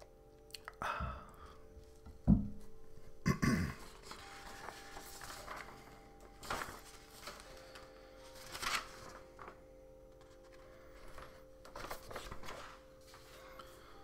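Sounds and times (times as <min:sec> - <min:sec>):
paper rustling: 0:03.8 - 0:13.8
faint sustained tones: 0:04.0 - 0:14.0.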